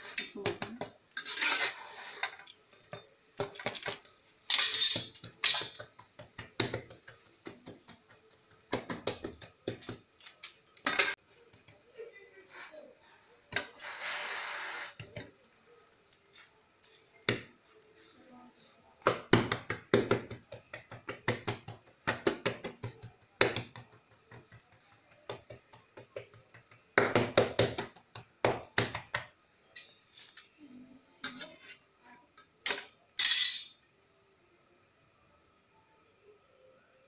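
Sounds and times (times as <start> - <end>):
kitchen utensils and dishes clattering: 0.0 - 8.2, 8.8 - 11.2, 31.2 - 33.8
faint high hiss: 10.2 - 19.5.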